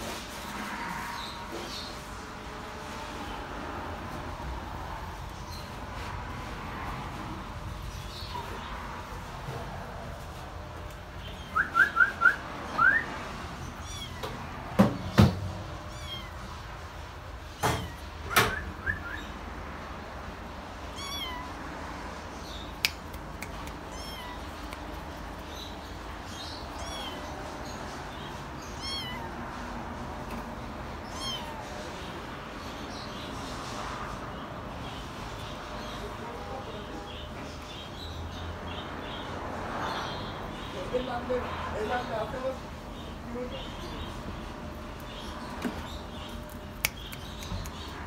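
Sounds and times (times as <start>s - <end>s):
kittens mewing: 13.7s - 14.6s, 15.7s - 16.6s, 20.9s - 21.6s, 23.3s - 25.0s, 26.6s - 27.4s, 28.6s - 29.6s, 31.0s - 31.9s.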